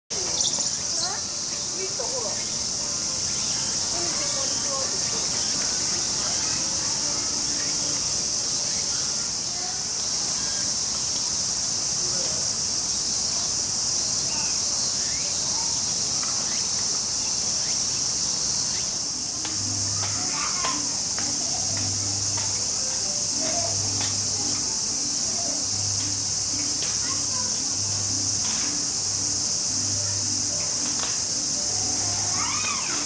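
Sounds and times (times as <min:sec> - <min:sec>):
insect chorus: 0:00.1 - 0:33.0.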